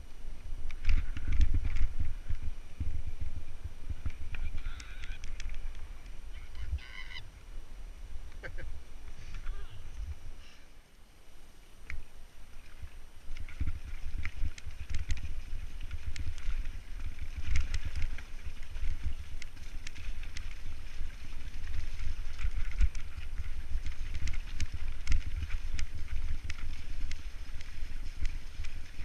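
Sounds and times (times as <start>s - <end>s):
stones under bike tyres: 0.0s - 7.3s, 11.8s - 29.0s
wind buffeting microphone: 0.0s - 10.4s
bike clicks and rattles: 0.6s - 2.5s, 4.0s - 6.2s, 12.8s - 29.0s.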